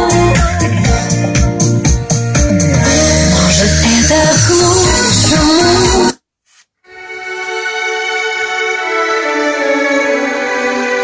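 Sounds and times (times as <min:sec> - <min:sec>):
melody over steady bass: 0:00.0 - 0:06.2.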